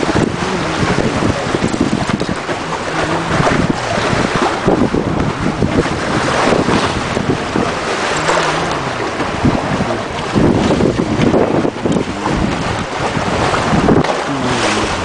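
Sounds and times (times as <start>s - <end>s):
water splashing along hulls: 0.0s - 15.0s
wind buffeting microphone: 0.0s - 15.0s.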